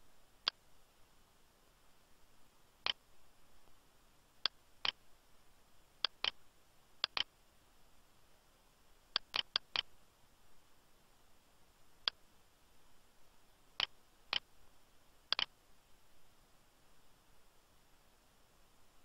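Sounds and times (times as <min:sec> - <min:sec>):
mouse and keyboard clicks: 0:06.0 - 0:06.4, 0:07.0 - 0:07.3, 0:09.2 - 0:09.9, 0:15.3 - 0:15.5.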